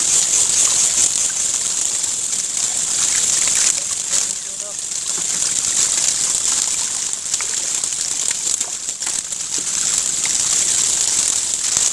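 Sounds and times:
fish flapping and splashing: 0:00.0 - 0:11.9
steady high hiss: 0:00.0 - 0:11.9.

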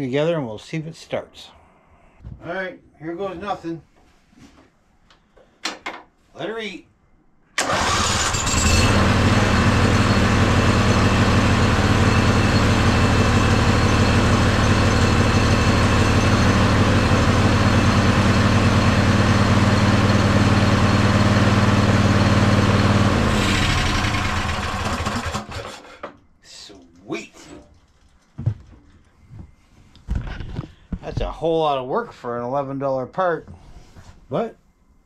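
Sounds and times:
lawn tractor engine running: 0:07.6 - 0:25.7.

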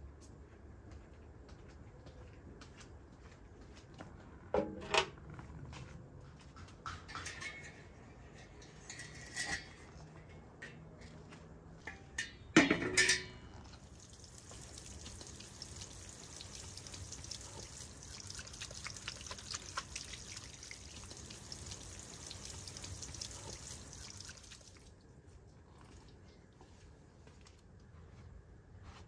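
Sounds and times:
sharp metallic clanks: 0:11.8 - 0:13.8
water from hose splashing on soil: 0:13.8 - 0:24.9.

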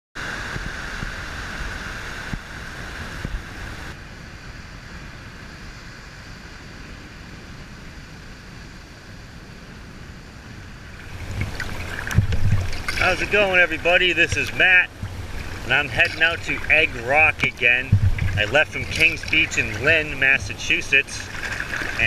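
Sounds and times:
small waves washing on beach: 0:00.2 - 0:22.0
wind buffeting microphone: 0:10.5 - 0:22.0.

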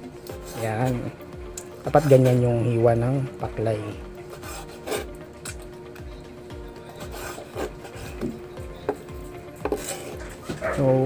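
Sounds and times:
knife slicing soft meat: 0:04.3 - 0:05.6, 0:06.9 - 0:08.3
knife knocking on wooden board: 0:08.2 - 0:09.8.

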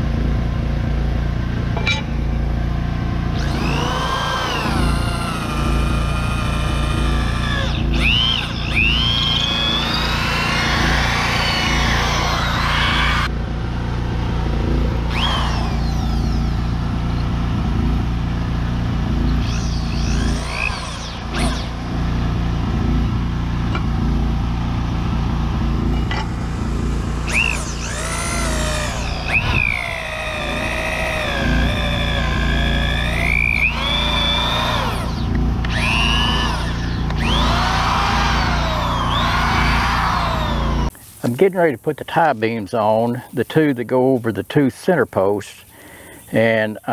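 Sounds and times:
generator humming: 0:00.0 - 0:41.5
electric drill boring into wood: 0:03.3 - 0:13.3, 0:15.1 - 0:16.8, 0:19.2 - 0:22.0, 0:25.8 - 0:40.9.

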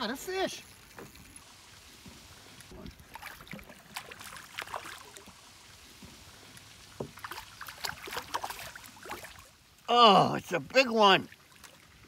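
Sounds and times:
fish thrashing and splashing: 0:00.7 - 0:09.6.

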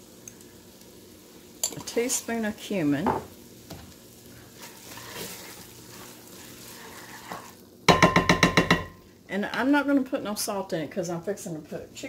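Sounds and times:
food sizzling in a pot: 0:00.0 - 0:12.0
utensil scraping a pot: 0:04.4 - 0:07.6.

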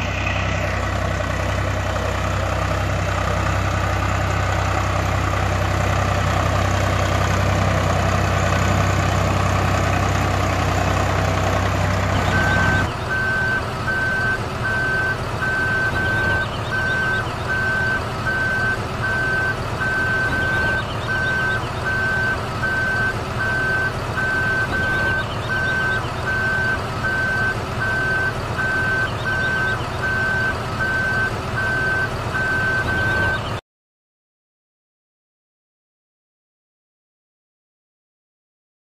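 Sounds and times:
heavy vehicle engine humming: 0:00.0 - 0:33.6
reversing beeper: 0:12.1 - 0:33.6.

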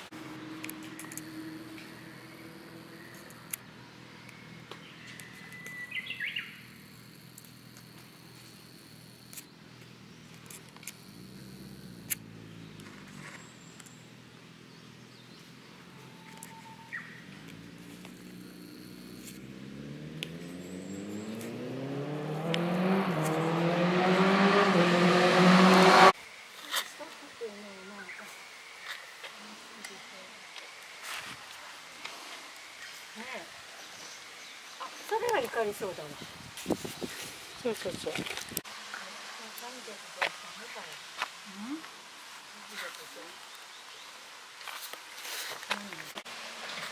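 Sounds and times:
vehicle engine accelerating: 0:00.0 - 0:05.5, 0:09.8 - 0:26.2
small bird chirping: 0:00.8 - 0:19.5.

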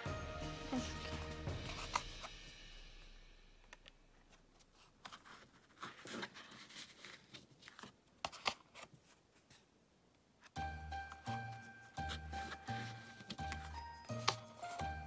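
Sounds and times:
paper card rustling: 0:00.8 - 0:02.3, 0:03.8 - 0:09.6, 0:11.1 - 0:15.0.

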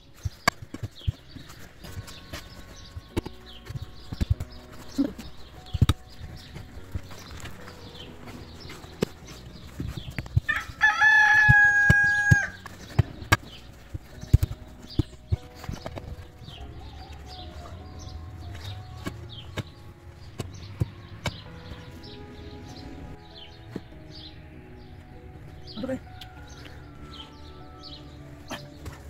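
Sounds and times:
small birds chirping: 0:00.0 - 0:29.0
rooster crowing: 0:10.5 - 0:12.6.

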